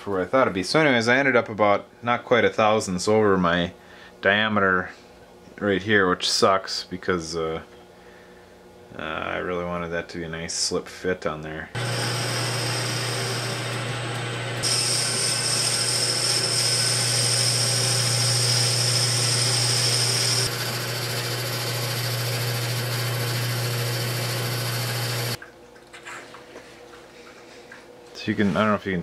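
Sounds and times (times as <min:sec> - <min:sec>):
high-pitched cutting whine: 0:11.8 - 0:25.4
lathe motor hum: 0:11.8 - 0:25.4.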